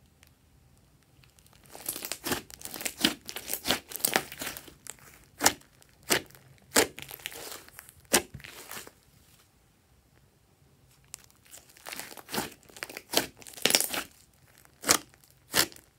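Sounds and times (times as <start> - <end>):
slime crackling and popping: 1.1 - 8.9, 11.0 - 15.9.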